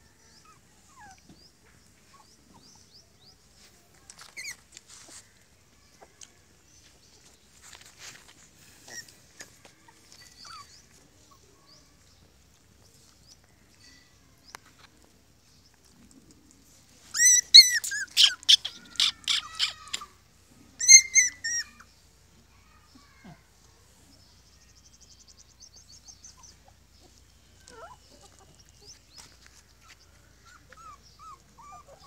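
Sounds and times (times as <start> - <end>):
puppies whimpering: 0.3 - 1.3, 8.7 - 11.4, 17.1 - 20.2, 20.8 - 21.8, 26.1 - 32.0
puppies yelping: 8.8 - 11.4, 17.1 - 21.9, 26.2 - 32.0.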